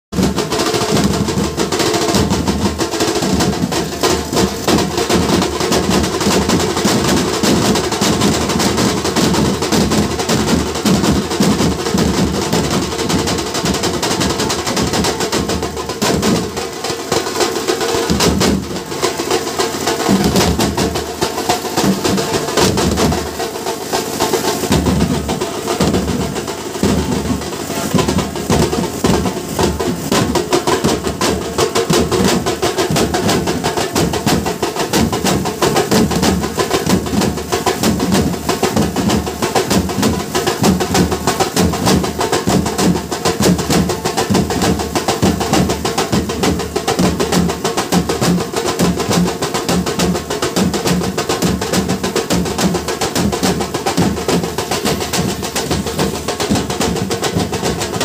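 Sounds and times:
barrel drums beaten with sticks: 0:00.1 - 0:58.0.

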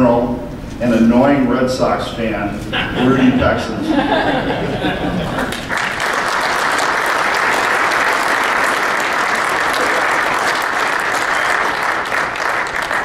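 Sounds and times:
crowd clapping: 0:05.2 - 0:13.0.

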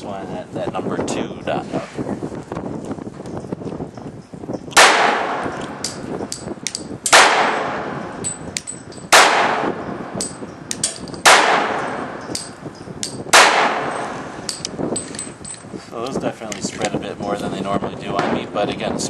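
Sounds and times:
pistol shots echoing: 0:04.8 - 0:06.0, 0:07.0 - 0:08.4, 0:09.1 - 0:14.6.

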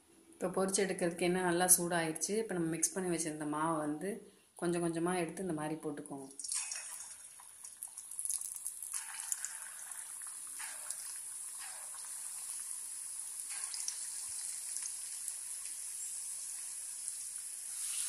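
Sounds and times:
batter splashing into oil: 0:06.4 - 0:18.0
hot oil sizzling: 0:06.4 - 0:18.0.

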